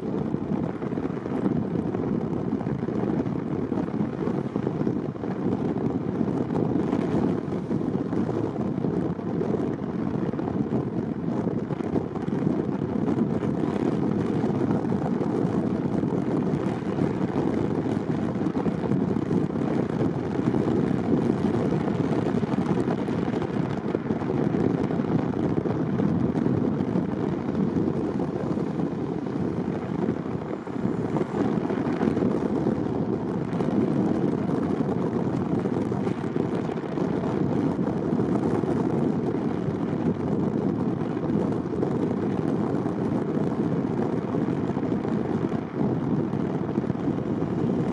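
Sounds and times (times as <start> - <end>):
car road and engine rumble: 0.0 - 47.9.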